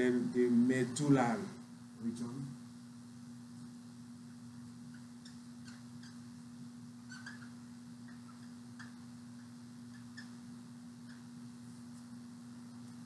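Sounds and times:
low electrical hum: 0.0 - 13.0
marker squeaking on whiteboard: 4.9 - 6.2, 7.0 - 10.4, 11.0 - 11.4.

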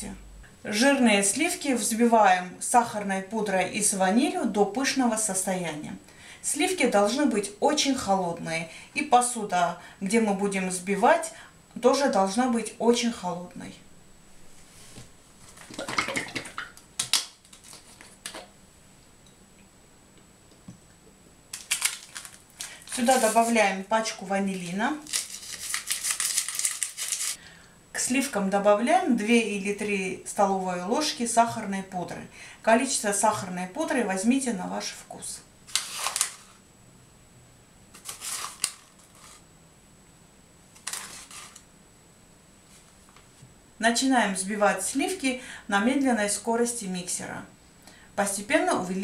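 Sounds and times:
spoon rustling and scraping: 21.6 - 23.7, 25.0 - 27.4, 35.7 - 36.6, 38.0 - 39.5, 40.8 - 41.7.

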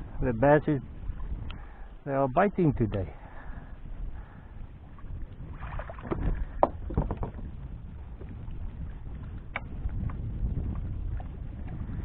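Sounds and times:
wind rumbling on microphone: 0.0 - 12.0
water splashes and knocks: 5.5 - 12.0.

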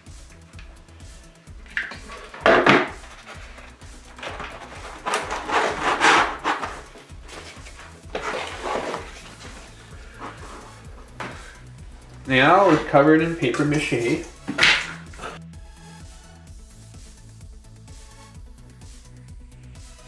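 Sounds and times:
light background music: 0.0 - 20.0
paper rustling: 1.7 - 11.6.

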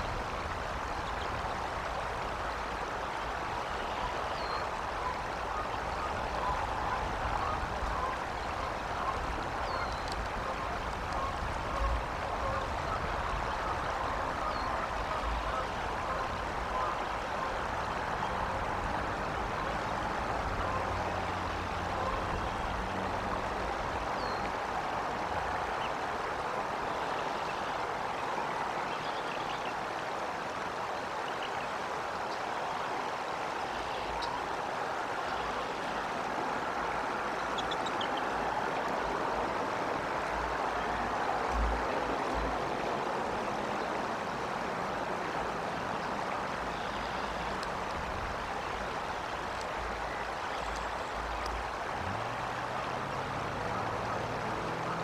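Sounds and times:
rushing water: 0.0 - 55.0
low calls: 0.8 - 29.9.

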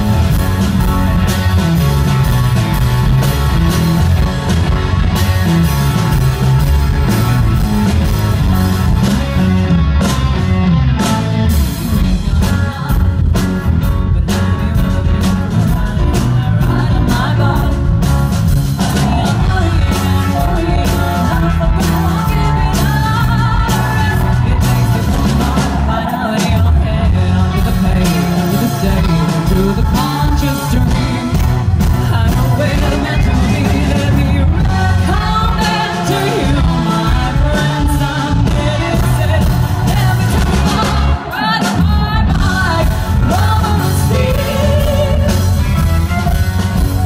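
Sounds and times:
bass guitar: 0.0 - 47.0
drums: 0.0 - 47.0
electric guitars: 0.0 - 47.0
person singing: 11.8 - 47.0.

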